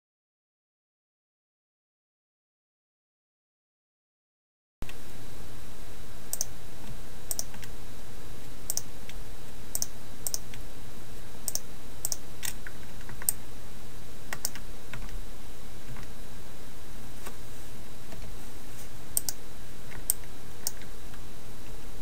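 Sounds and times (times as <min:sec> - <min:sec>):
low hum and hiss: 0:04.8 - 0:22.0
mouse and keyboard clicks: 0:07.3 - 0:07.7, 0:09.8 - 0:10.5, 0:14.3 - 0:15.2.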